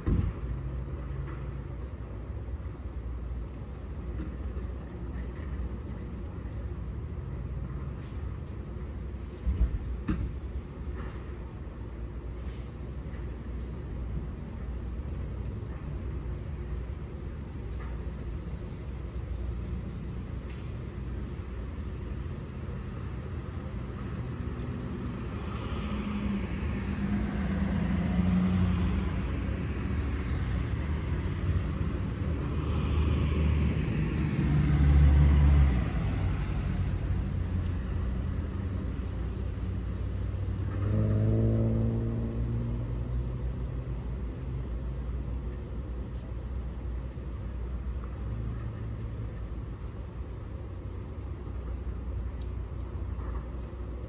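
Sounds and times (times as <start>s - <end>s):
low vehicle rumble: 0.0s - 54.0s.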